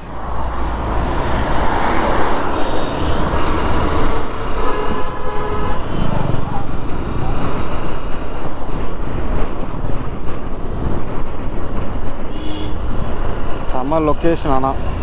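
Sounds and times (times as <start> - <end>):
wind and road noise: 0.0 - 15.0
vehicle horn toot: 4.6 - 5.8, 12.3 - 12.8.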